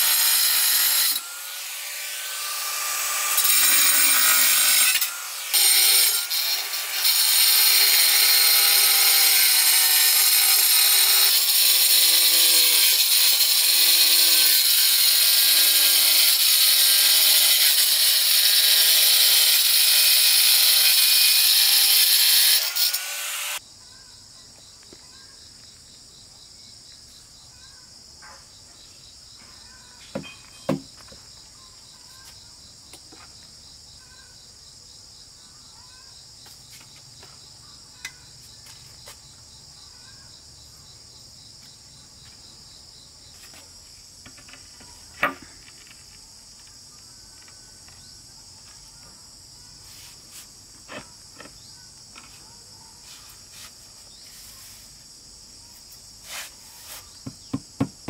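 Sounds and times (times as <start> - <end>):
power saw cutting: 0.0 - 23.6
crickets chirping: 23.6 - 58.0.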